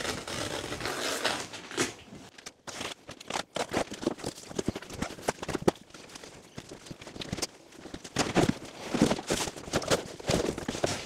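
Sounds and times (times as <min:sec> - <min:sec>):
cardboard box rustling: 0:03.0 - 0:11.0.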